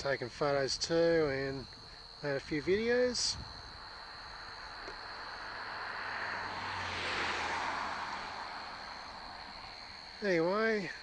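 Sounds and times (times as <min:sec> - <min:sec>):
vehicle passing: 0:03.6 - 0:11.0.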